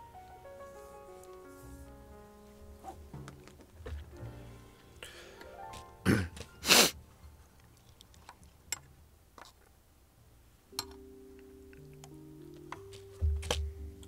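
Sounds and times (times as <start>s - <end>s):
quiet background music: 0.0s - 14.0s
man coughing: 6.0s - 6.9s.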